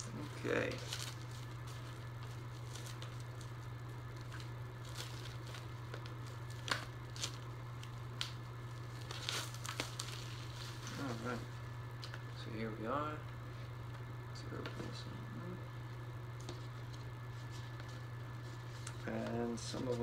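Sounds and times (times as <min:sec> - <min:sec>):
steady low hum: 0:00.0 - 0:20.0
cardboard sleeve rustling: 0:00.2 - 0:11.5
plastic shrink wrap crinkling: 0:00.2 - 0:12.3.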